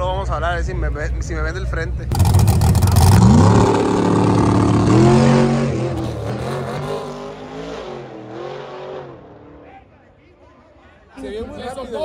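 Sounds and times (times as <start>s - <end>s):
drag car engine revving: 2.1s - 9.6s.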